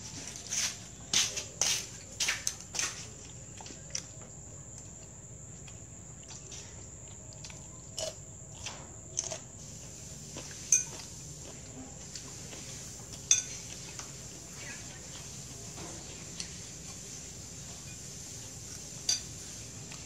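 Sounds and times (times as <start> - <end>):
utensils clinking on plates: 10.6 - 11.1, 13.1 - 14.2, 17.7 - 18.1, 18.7 - 19.5.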